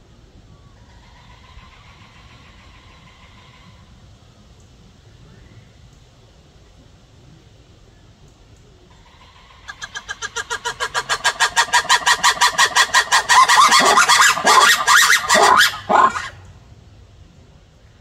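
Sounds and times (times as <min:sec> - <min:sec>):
lemur barking and shrieking: 0:09.5 - 0:16.4.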